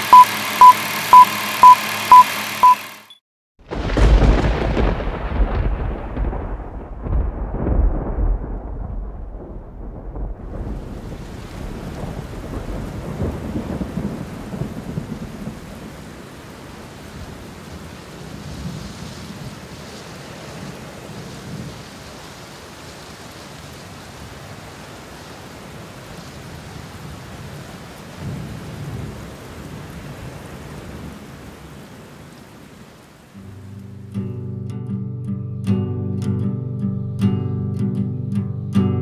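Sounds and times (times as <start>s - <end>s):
steady rain: 0.0s - 34.1s
rolling thunder: 3.7s - 16.3s, 28.2s - 31.2s.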